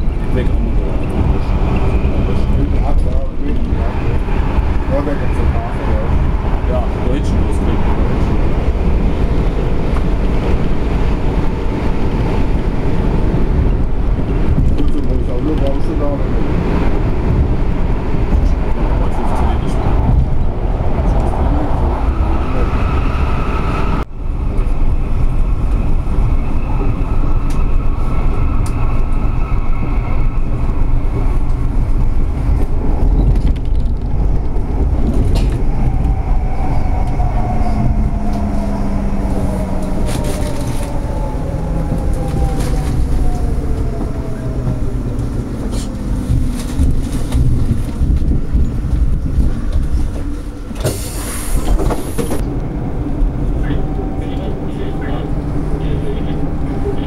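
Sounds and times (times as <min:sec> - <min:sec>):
wheels rumbling on rail: 0:00.0 - 0:57.0
tram motor whine: 0:19.7 - 0:57.0.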